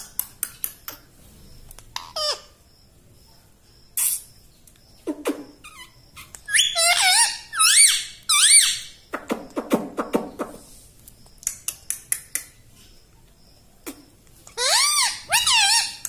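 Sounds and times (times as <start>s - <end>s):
parakeet chattering: 5.0s - 9.0s, 14.5s - 16.0s
parakeet squawks: 5.6s - 9.0s, 14.6s - 16.0s.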